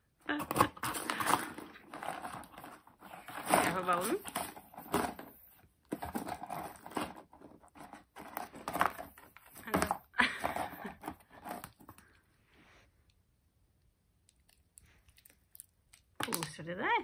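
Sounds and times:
puppy rustling in cardboard box: 0.8 - 9.7.

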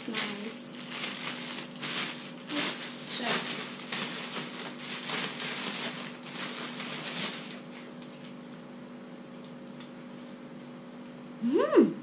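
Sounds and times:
plastic packaging rustling: 0.0 - 8.7.

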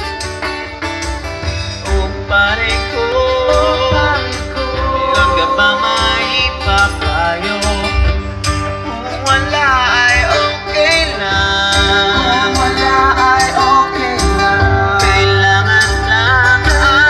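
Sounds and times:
acoustic guitars: 0.0 - 17.0
drums playing steady beat: 0.0 - 17.0
person singing: 1.5 - 17.0.

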